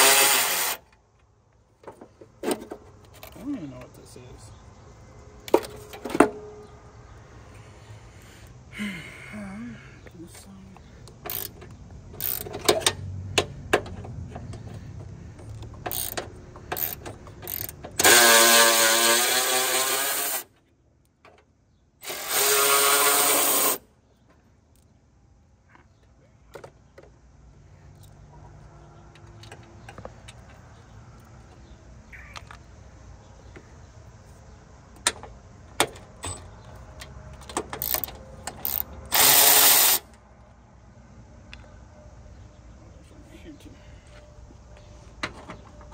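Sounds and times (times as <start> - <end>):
electric ratchet running: 0.0 - 0.9, 11.3 - 12.6, 15.8 - 20.5, 22.0 - 23.8, 37.8 - 40.1.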